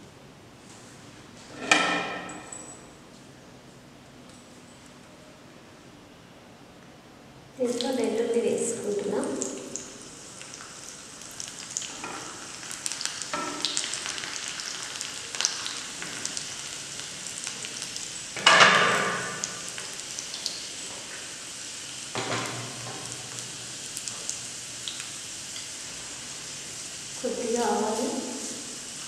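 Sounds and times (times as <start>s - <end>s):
garlic sizzling in hot oil: 8.6s - 29.0s.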